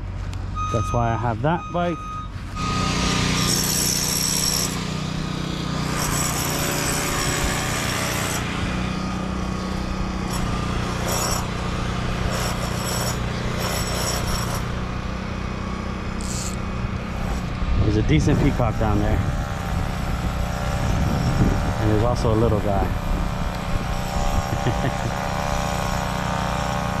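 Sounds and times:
machinery engine hum: 0.0s - 12.4s
high-pitched power tool: 0.6s - 27.0s.

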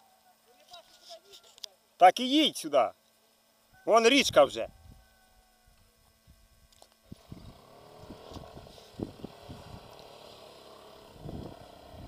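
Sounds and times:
quad bike engine running: 7.1s - 12.0s.

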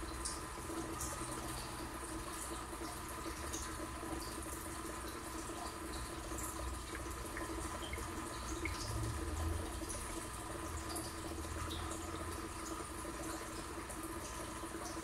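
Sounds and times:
aquarium water trickling: 0.0s - 15.0s
bubble ticks: 6.9s - 10.2s.

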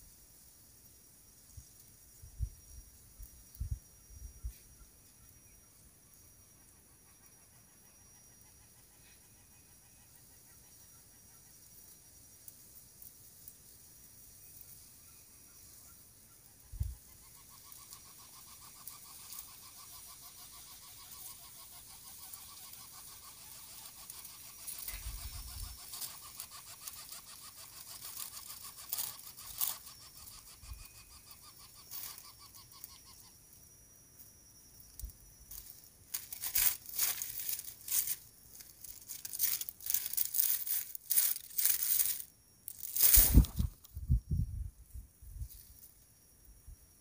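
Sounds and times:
chick buzzing begging trill: 17.2s - 33.3s
dry grass nest rustling: 21.7s - 30.7s, 35.5s - 43.8s.

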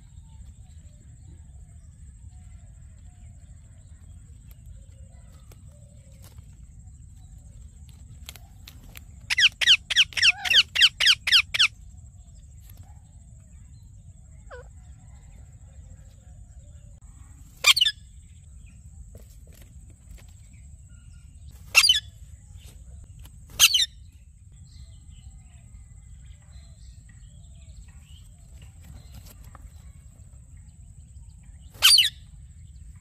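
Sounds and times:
parrot screeching: 9.3s - 11.6s.

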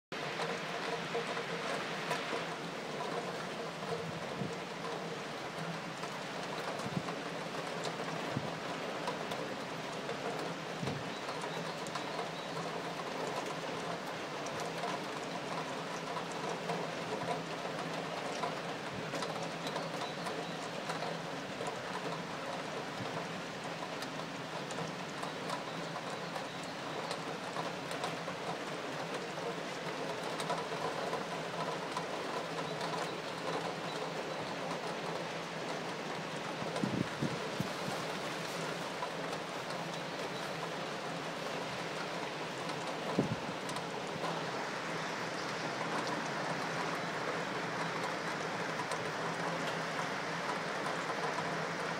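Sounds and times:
raindrops ticking on surfaces: 0.1s - 51.9s
steady rain: 0.1s - 51.9s.

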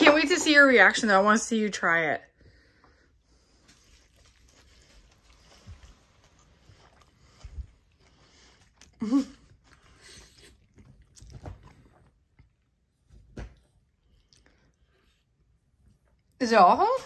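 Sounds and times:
chewing and slurping noodles: 3.4s - 12.6s.

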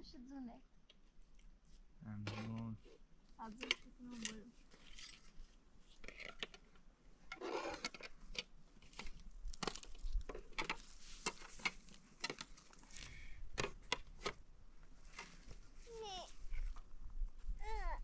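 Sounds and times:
scraping rustle: 1.7s - 6.7s, 7.3s - 8.2s, 8.8s - 13.0s.

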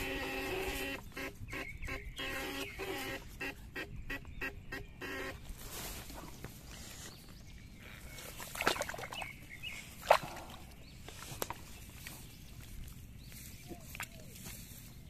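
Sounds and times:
rustling in soil: 5.2s - 15.0s.

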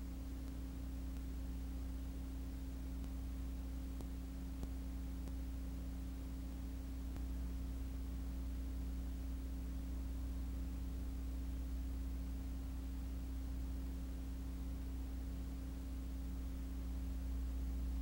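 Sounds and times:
low electrical hum: 0.0s - 18.0s
faint clicks: 0.4s - 1.4s, 3.0s - 3.2s, 4.0s - 5.4s, 7.1s - 7.3s.

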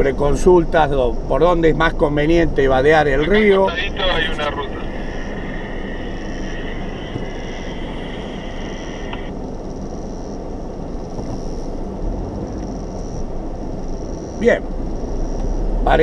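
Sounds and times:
vehicle engine idling: 0.0s - 16.0s
high steady tone: 3.2s - 10.4s.

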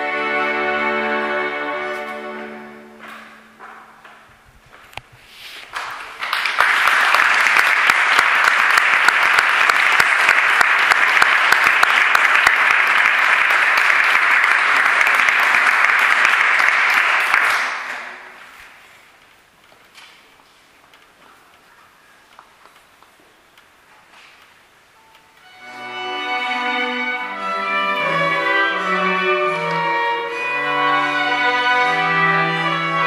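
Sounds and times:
audience applauding: 5.8s - 18.4s.

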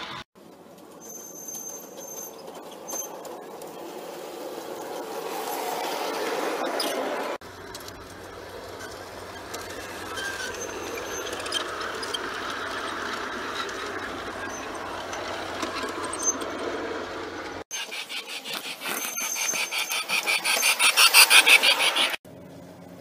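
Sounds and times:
model train cars rattling: 0.1s - 22.2s
train wheels clicking on rails: 7.6s - 22.2s.

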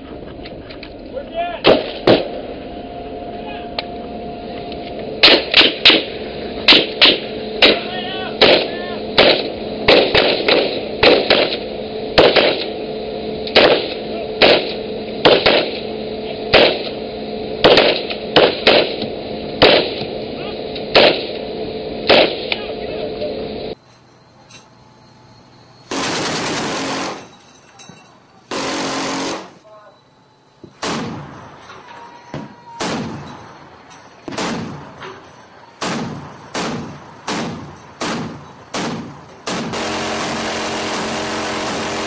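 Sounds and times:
steady hum: 0.0s - 42.0s
rifle shots: 1.6s - 2.3s, 5.2s - 6.1s, 6.7s - 12.8s, 13.5s - 15.9s, 16.5s - 17.0s, 17.6s - 20.1s, 20.9s - 21.4s, 22.1s - 22.5s, 25.9s - 27.2s, 28.5s - 29.6s, 30.8s - 31.3s, 34.3s - 35.0s, 35.8s - 42.0s.

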